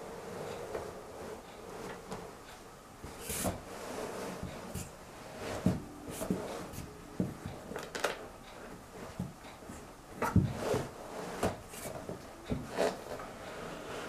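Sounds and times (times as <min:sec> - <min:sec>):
rubber creaking: 0:03.1 - 0:14.0.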